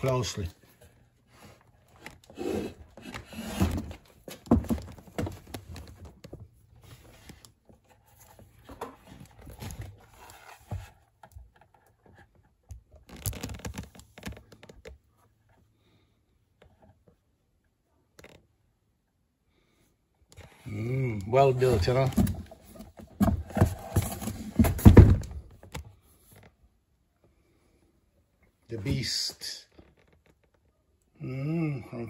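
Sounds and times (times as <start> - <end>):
cardboard boxes rustling and scraping: 1.2 - 12.3, 20.4 - 26.4.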